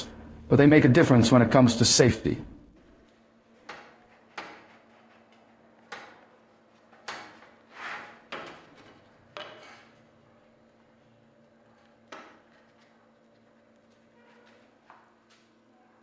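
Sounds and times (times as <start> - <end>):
steel sheet scraping: 7.7 - 8.3.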